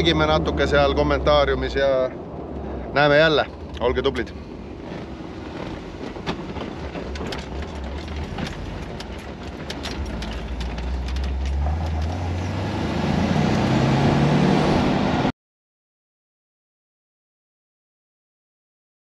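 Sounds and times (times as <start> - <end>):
car engine running: 0.0 - 15.2.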